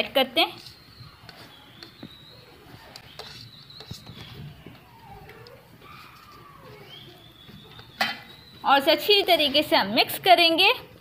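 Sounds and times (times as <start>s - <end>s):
fingers scraping herbs off plate: 0.5s - 4.9s.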